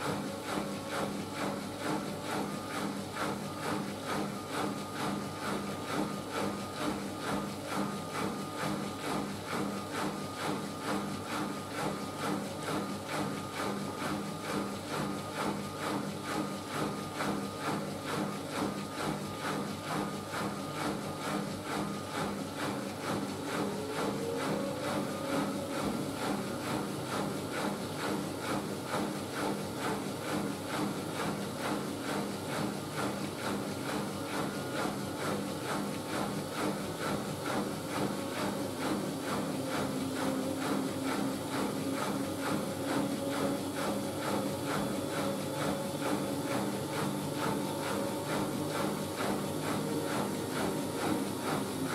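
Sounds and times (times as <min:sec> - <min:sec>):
washing machine laundry swishing: 0:14.6 - 0:30.6, 0:31.7 - 0:51.9.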